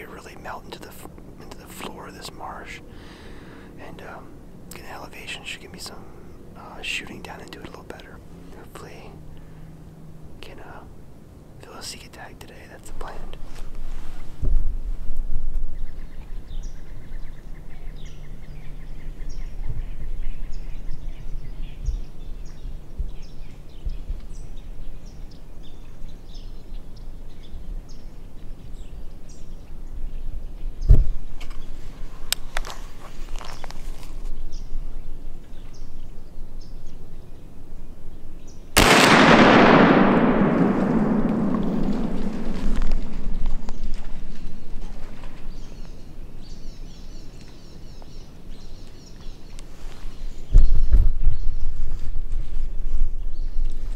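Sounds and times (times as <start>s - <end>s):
small birds chirping: 0.0s - 10.9s, 15.6s - 38.8s, 42.8s - 53.9s
rifle shot with echo: 38.8s - 44.7s.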